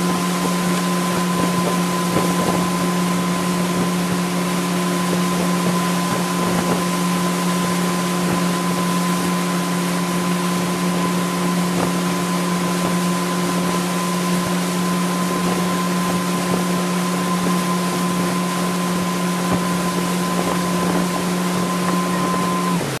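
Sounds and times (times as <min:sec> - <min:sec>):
boat engine droning: 0:00.0 - 0:23.0
water rushing: 0:00.0 - 0:23.0
wind on microphone: 0:00.0 - 0:23.0
thin steady whine: 0:19.4 - 0:23.0.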